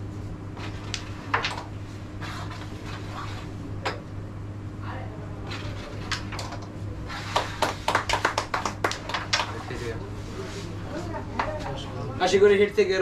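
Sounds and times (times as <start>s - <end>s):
people clapping: 7.1s - 10.0s.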